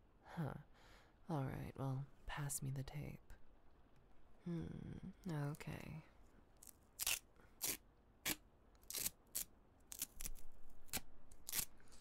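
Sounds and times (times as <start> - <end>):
adhesive tape ripping: 6.6 - 12.0.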